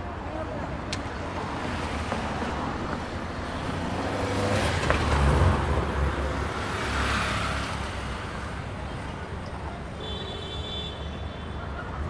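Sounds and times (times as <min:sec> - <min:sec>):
car passing by: 0:03.5 - 0:08.4.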